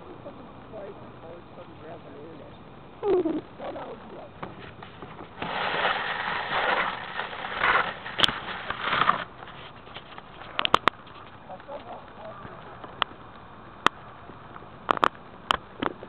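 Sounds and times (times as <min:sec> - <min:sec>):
microphone rustling and rubbing: 0:04.4 - 0:12.0.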